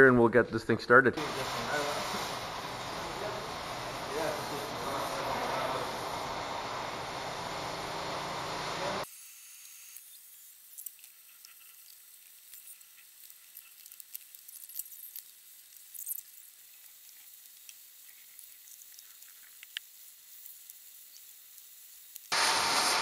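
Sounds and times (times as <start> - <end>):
loud rushing hiss: 1.2 - 9.1, 22.3 - 23.0
electric arc welding sizzle: 1.2 - 23.0.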